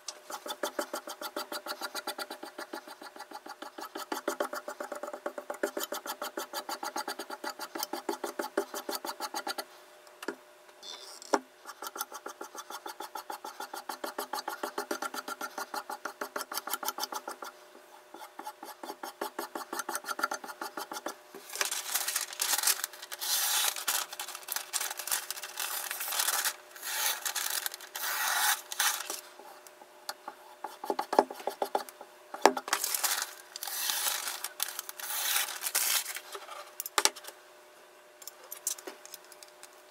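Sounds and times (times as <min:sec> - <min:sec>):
sharpening stone rasping scrape: 0:28.0 - 0:28.6.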